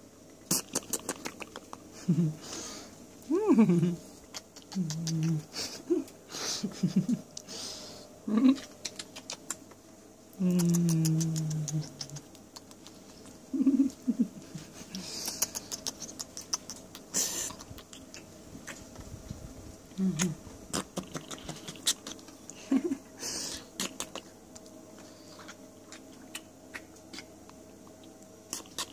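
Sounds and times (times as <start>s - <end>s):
lip smacks and kisses: 0.5s - 1.9s, 4.3s - 6.2s, 8.6s - 13.4s, 15.0s - 19.0s, 20.1s - 22.6s, 23.7s - 24.8s, 25.4s - 28.9s.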